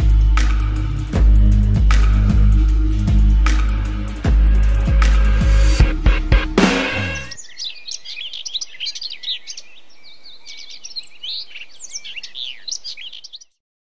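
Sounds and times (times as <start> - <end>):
music: 0.0 - 7.4
birds chirping: 0.0 - 13.6.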